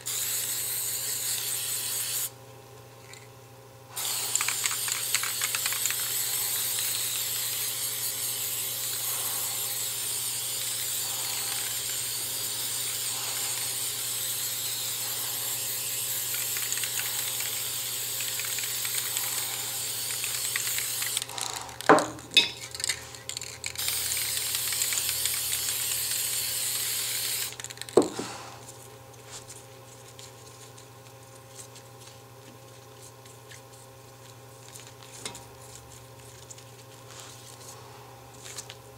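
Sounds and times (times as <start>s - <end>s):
spray paint can hissing: 0.0s - 2.3s, 4.0s - 22.0s, 22.6s - 28.0s.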